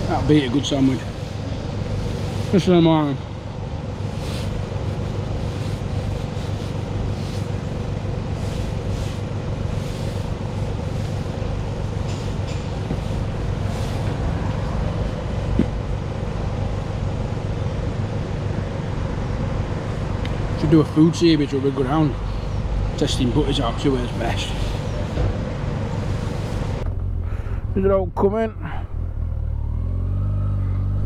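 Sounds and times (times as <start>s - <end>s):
engine idling: 0.0s - 29.9s.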